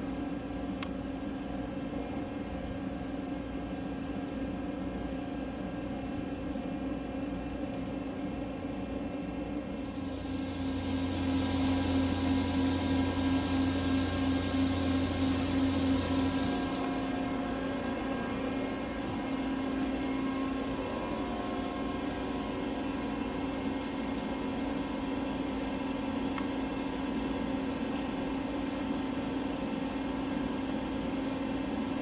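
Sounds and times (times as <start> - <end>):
machinery hum: 9.6 - 28.3.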